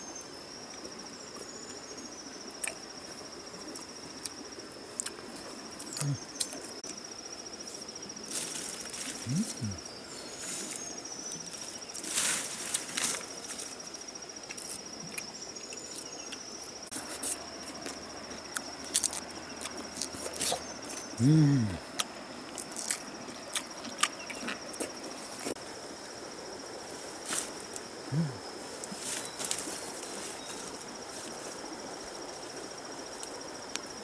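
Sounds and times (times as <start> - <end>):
high-pitched insect trill: 0.0 - 34.0
leaves rustling: 6.6 - 15.0, 26.5 - 33.5.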